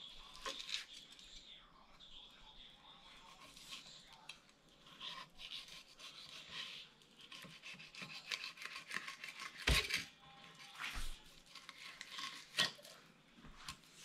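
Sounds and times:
knife scraping on cutting board: 4.8 - 10.0.

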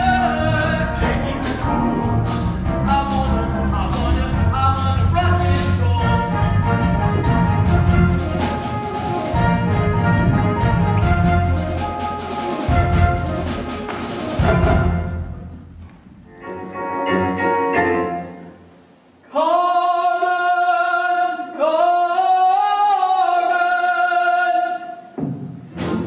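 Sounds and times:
orchestral chords: 0.0 - 19.1.

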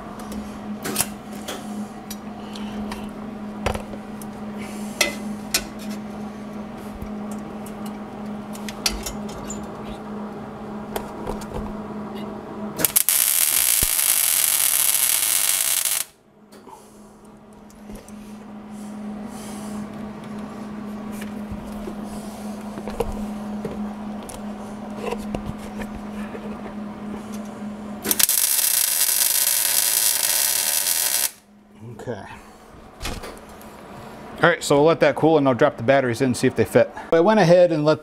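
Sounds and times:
steady hum: 0.0 - 38.0
welder arc hissing and crackling: 12.8 - 16.2, 28.0 - 31.4.

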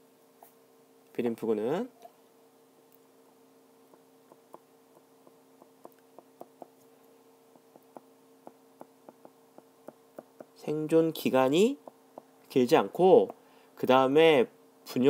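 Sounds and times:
low steady hum: 0.0 - 15.0
stylus tapping on glass screen: 3.9 - 6.8, 7.6 - 10.6.

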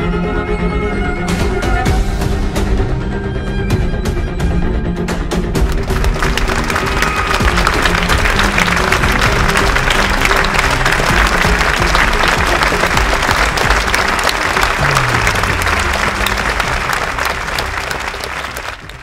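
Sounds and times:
background music low sustained notes: 0.0 - 19.0
audience applauding: 5.6 - 19.0.

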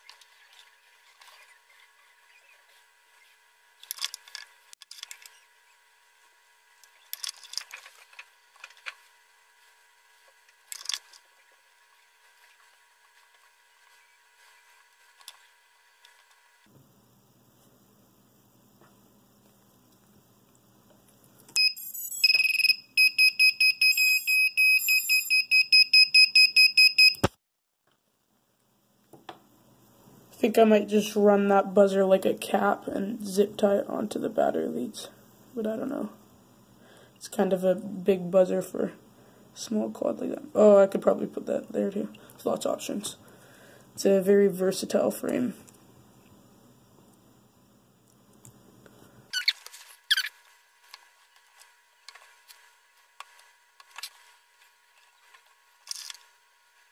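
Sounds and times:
faint steady hum: 0.0 - 56.9
electronic buzzer beeping: 21.6 - 27.3.

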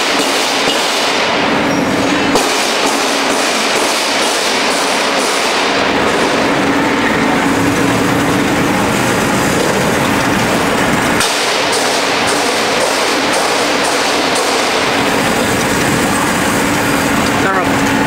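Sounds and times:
roasting machine rattle and hiss: 0.0 - 18.0
low machine rumble: 5.6 - 18.0.

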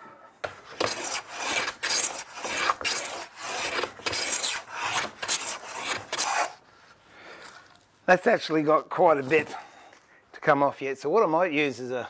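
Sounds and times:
hand plane shaving wood: 0.7 - 6.6.

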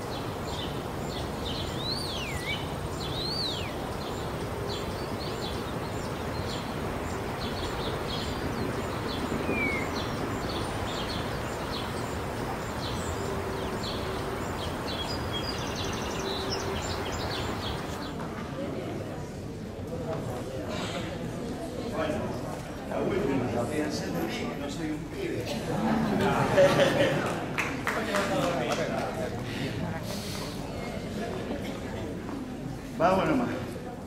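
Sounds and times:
swooping whistled bird calls: 0.0 - 18.1
small birds chirping: 0.0 - 18.2
outdoor background noise: 0.0 - 34.0.

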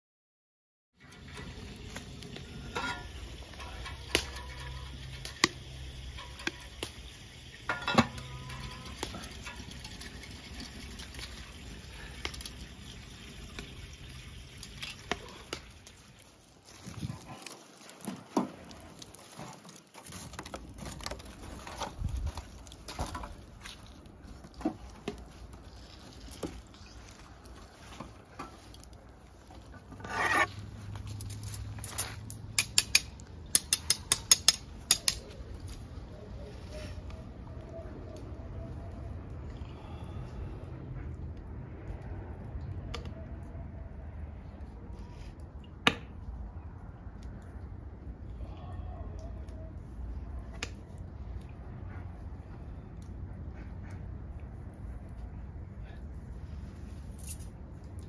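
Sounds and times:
clicks and knocks of utensils: 31.3 - 35.4.

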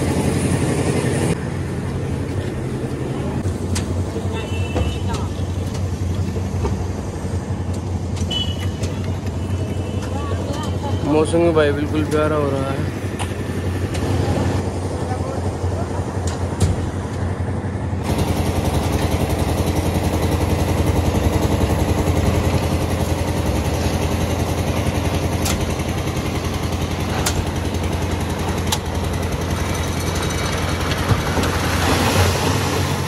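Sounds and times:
mixer engine humming: 0.0 - 33.0
wet concrete rushing out: 29.6 - 33.0.

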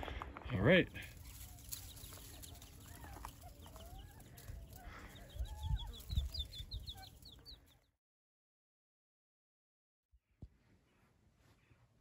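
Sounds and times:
quail chicks peeping: 0.8 - 7.9
quail low clucking: 1.1 - 7.4.

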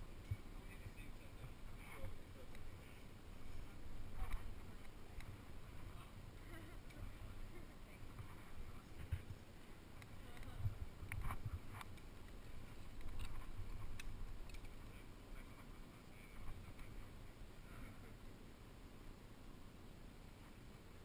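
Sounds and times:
carabiner gate and rope clicks: 10.0 - 15.0.

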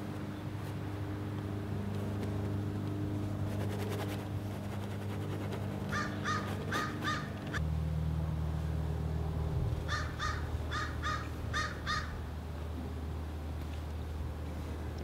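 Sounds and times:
low hum: 0.0 - 15.0
crow cawing: 5.9 - 7.5, 9.9 - 12.1.

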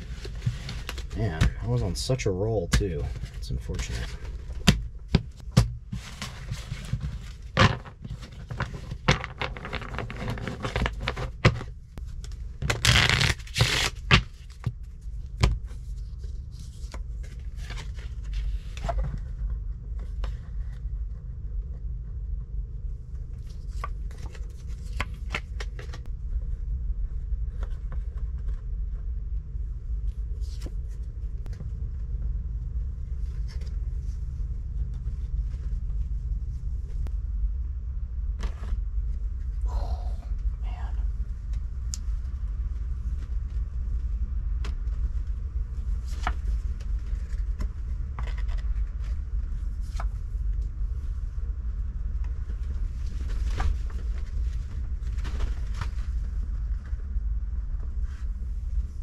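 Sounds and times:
low steady rumble: 0.0 - 59.0
cards shuffling: 5.9 - 14.7, 23.4 - 26.1.

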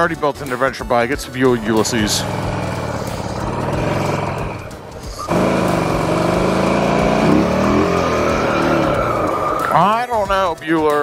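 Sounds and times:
motorcycle engine running: 1.5 - 9.7.

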